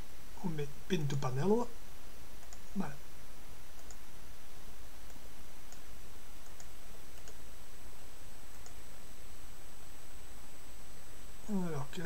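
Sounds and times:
low hum and hiss: 0.0 - 12.0
computer mouse clicks: 2.4 - 2.7, 3.7 - 4.0, 5.0 - 7.4, 8.5 - 8.8.

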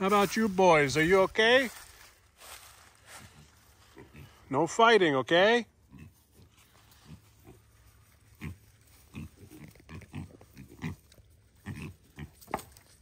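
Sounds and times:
pigs grunting: 3.3 - 4.6, 5.7 - 12.8.

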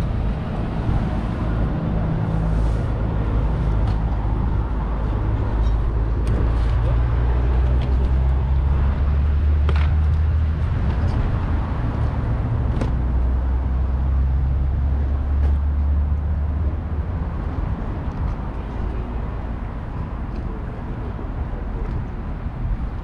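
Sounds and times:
low engine rumble: 0.0 - 23.0.

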